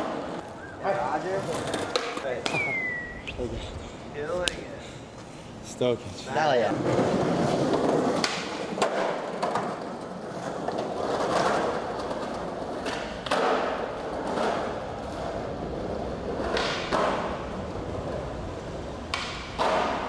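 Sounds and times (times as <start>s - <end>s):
skateboard wheels rolling on tiles: 0.0s - 2.4s, 6.5s - 20.0s
skateboard clacks: 1.2s - 2.7s, 6.7s - 20.0s.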